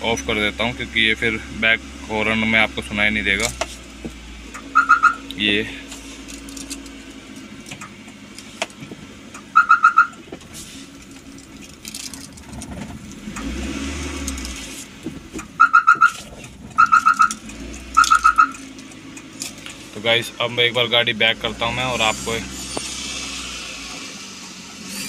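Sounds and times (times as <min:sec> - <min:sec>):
van engine idling: 0:00.0 - 0:25.0
quick electronic beeps: 0:04.7 - 0:05.3, 0:16.8 - 0:17.3, 0:18.0 - 0:18.6.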